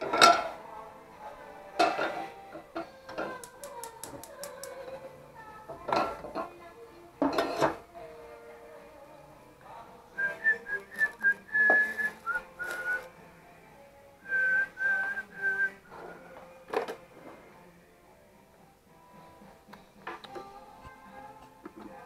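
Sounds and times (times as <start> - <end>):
person whistling short notes: 10.2 - 13.1, 14.3 - 15.8.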